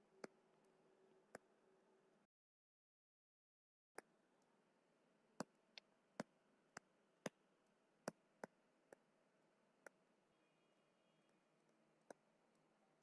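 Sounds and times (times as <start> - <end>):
stylus tapping drawing tablet: 5.4 - 7.4, 8.0 - 9.1.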